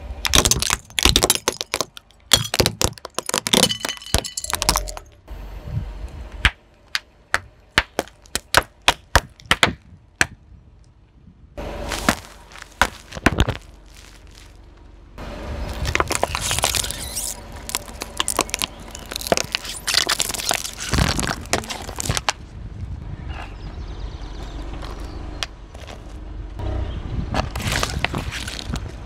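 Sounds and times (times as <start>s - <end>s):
car rumble: 0.0s - 29.0s
tyre crushing brittle objects: 0.2s - 5.2s, 7.8s - 10.4s, 11.8s - 14.6s, 15.7s - 22.4s, 27.5s - 28.9s.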